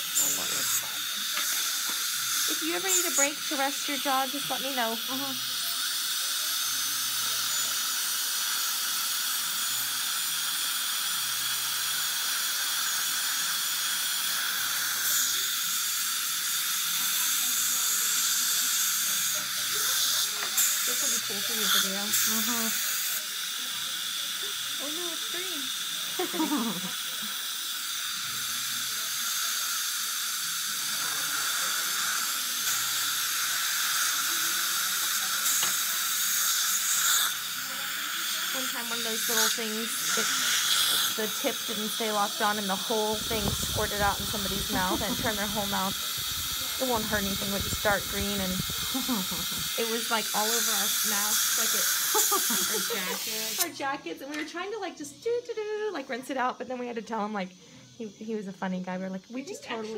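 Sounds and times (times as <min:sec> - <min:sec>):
dental suction: 0:00.0 - 0:53.7
dental drill whine: 0:00.0 - 0:59.9
water spray hiss: 0:38.6 - 0:53.7.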